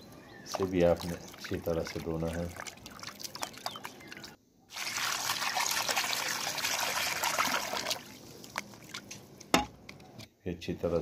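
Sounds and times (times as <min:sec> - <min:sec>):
water pouring into steel bowl: 0:00.5 - 0:03.7, 0:04.7 - 0:08.1.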